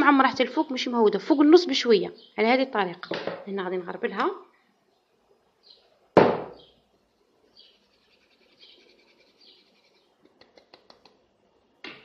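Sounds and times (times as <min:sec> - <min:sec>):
sharp knock: 0:06.2 - 0:06.6.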